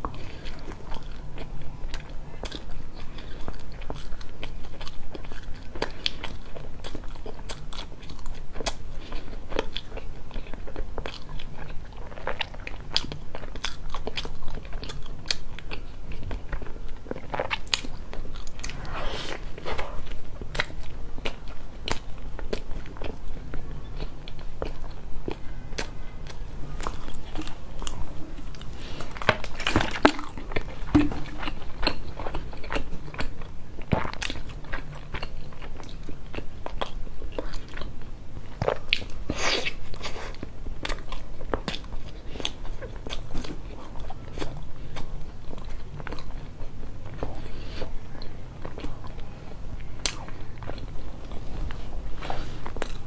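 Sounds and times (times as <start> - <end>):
person chewing: 0.0 - 53.0.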